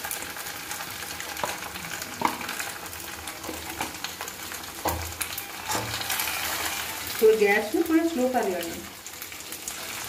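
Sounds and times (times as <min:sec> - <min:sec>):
food sizzling in a pan: 0:00.0 - 0:10.0
spatula scraping metal pan: 0:05.3 - 0:07.2.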